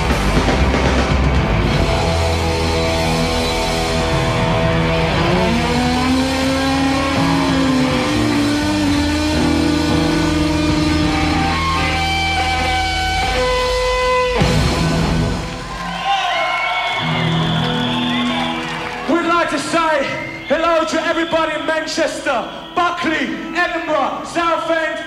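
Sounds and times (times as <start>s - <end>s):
electric guitar bending notes: 0.0s - 15.6s
live rock band: 0.0s - 21.4s.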